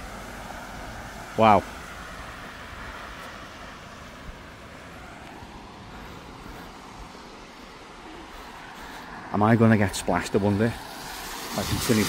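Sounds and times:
distant traffic rumble: 0.0 - 12.0
floodwater moving: 10.1 - 12.0.

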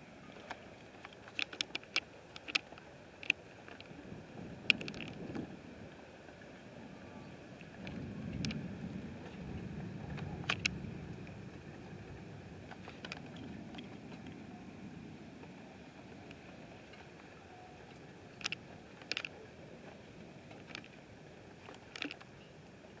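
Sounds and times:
faint high hum: 0.0 - 23.0
sharp clicks: 0.5 - 3.9, 4.7 - 5.2, 10.2 - 10.8, 18.4 - 19.4, 20.5 - 21.0, 21.6 - 22.3
distant thunder rumbling: 7.7 - 15.5.

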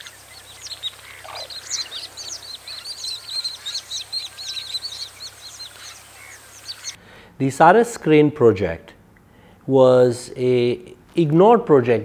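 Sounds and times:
lower bird call: 0.0 - 7.0
small birds chirping: 0.0 - 7.2.

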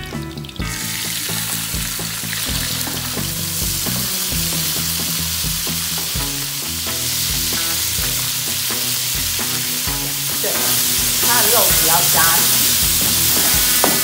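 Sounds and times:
fish sizzling in hot oil: 0.5 - 14.0
spatula turning food in wok: 12.4 - 14.0.

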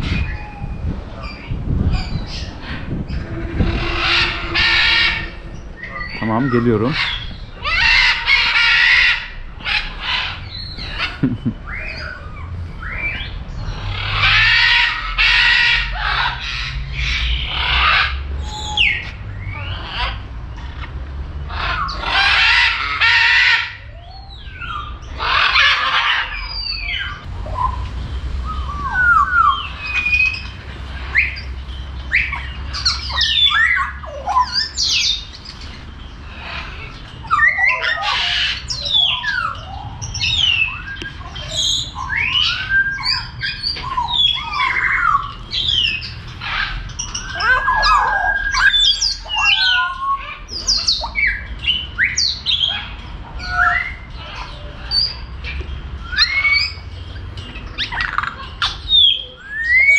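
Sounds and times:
loud harsh bird squawks: 1.3 - 20.9, 21.5 - 51.4
bird whistles and chirps: 26.4 - 35.3, 37.2 - 46.2, 46.9 - 52.8, 56.0 - 56.9, 57.7 - 59.9.

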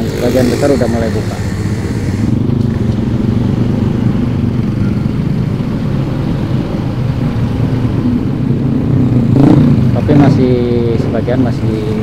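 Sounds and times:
motorcycle engine running: 0.0 - 6.6
traffic of motorbikes and cars: 0.0 - 12.0.

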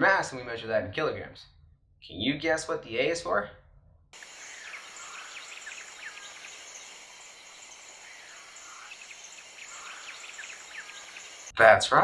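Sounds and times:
birds chirping: 4.2 - 11.8
steady high hiss: 4.2 - 11.8.

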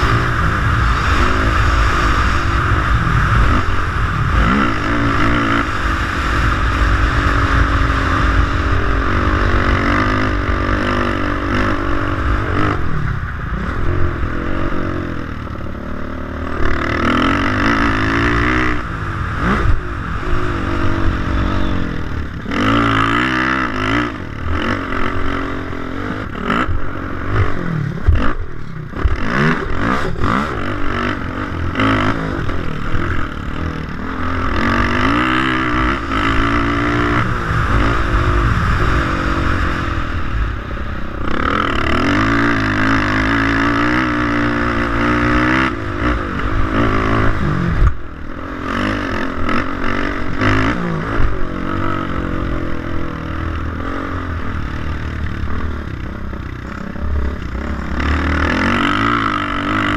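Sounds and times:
wind rush: 0.0 - 15.4, 28.9 - 42.4
motorcycle engine revving: 0.0 - 59.9.

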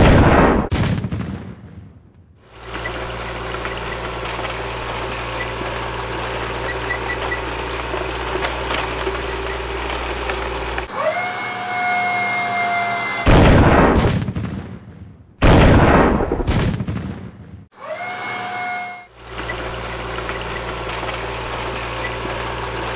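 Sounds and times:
cannon blast bangs: 0.0 - 2.3, 13.2 - 17.7
low tank engine rumble: 2.4 - 11.0, 19.1 - 22.9
rising whistle: 17.9 - 19.1.

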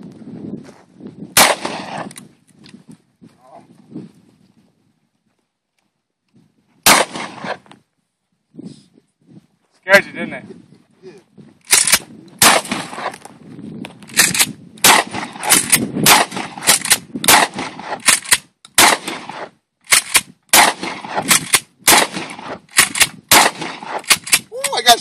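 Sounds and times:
shotgun shots: 1.4 - 2.1, 6.8 - 7.6, 11.7 - 13.2, 14.1 - 24.4.

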